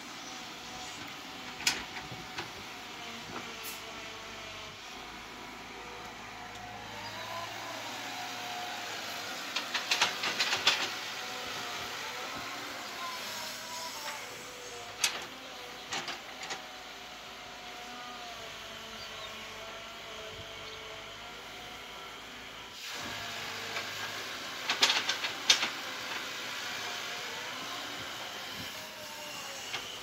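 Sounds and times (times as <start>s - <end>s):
diesel engine under load: 0.0s - 29.0s
hydraulic whine: 0.0s - 30.0s.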